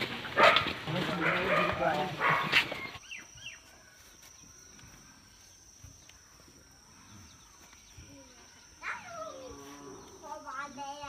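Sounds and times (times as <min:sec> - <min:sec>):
high-pitched insect trill: 0:02.8 - 0:11.0.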